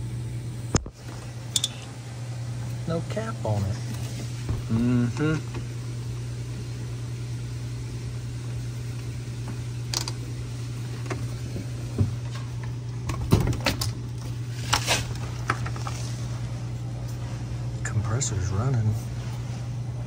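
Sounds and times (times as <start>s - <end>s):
refrigerator compressor humming: 0.0s - 20.0s.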